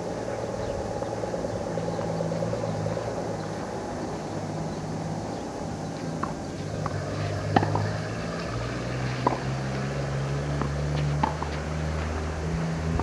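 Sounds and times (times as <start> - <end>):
steady low hum: 0.0 - 13.0
tennis ball struck by racket: 6.2 - 7.9, 9.2 - 9.5, 10.6 - 11.6.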